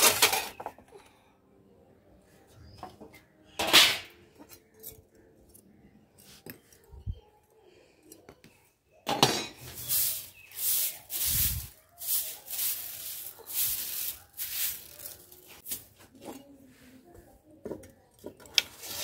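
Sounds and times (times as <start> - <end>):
hand broom sweeping grit: 9.6 - 16.1.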